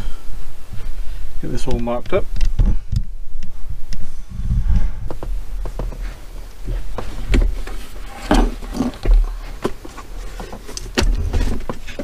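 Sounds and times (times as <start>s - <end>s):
dull low thumps: 2.4s - 11.9s.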